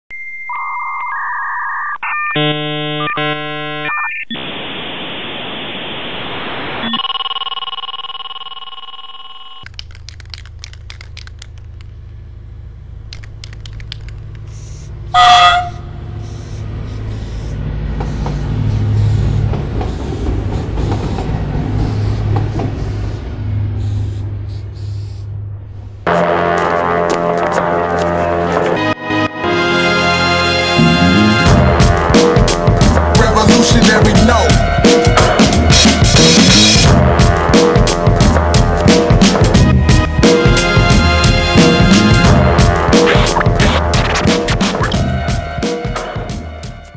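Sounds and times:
electronic test beeps: 0.1 - 4.4, 6.8 - 9.6
steady electronic tone: 0.1 - 9.6, 30.6 - 31.9
static hiss: 4.3 - 7.0, 14.4 - 15.0, 16.2 - 20.9, 21.8 - 25.3
low droning soundtrack: 25.2 - 46.9.

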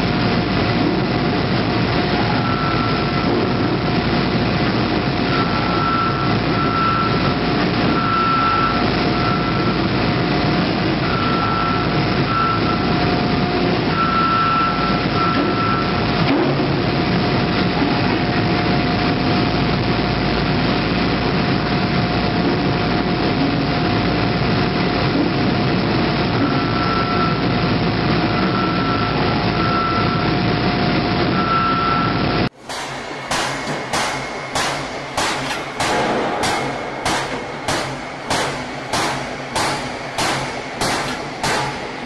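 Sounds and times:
constant machine tone: 0.0 - 42.0
factory machinery noise: 0.0 - 42.0
rhythmic warning beeps: 5.3 - 7.3, 7.9 - 9.8, 11.0 - 12.9, 13.9 - 16.0, 28.3 - 30.3.

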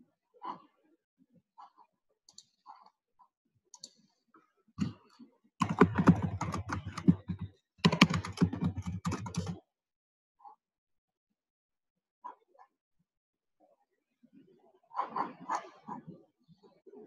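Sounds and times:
rapid keyboard typing: 5.6 - 9.6.

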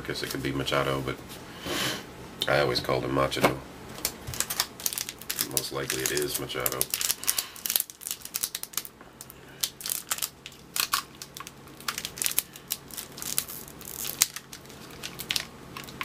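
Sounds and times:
foil wrapper crinkling: 4.0 - 16.0.

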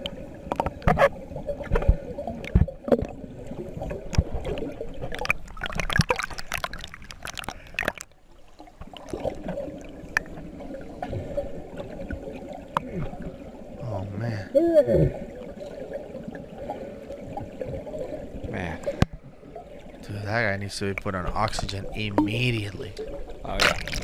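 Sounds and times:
underwater air bubbling: 0.0 - 24.0.

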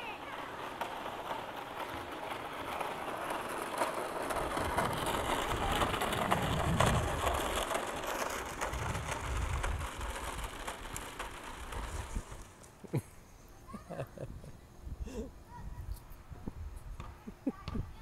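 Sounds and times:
plastic wheels rattling on concrete: 0.0 - 12.9.

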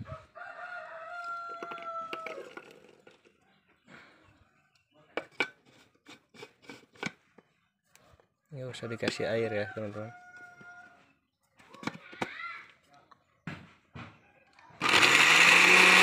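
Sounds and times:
rooster crowing: 0.0 - 2.5, 9.2 - 11.0.

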